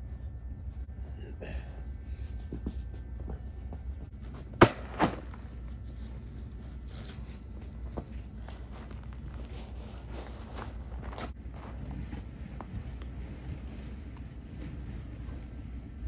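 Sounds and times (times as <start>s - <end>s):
steady low rumble: 0.0s - 16.0s
bag thudding on snow: 4.5s - 5.5s.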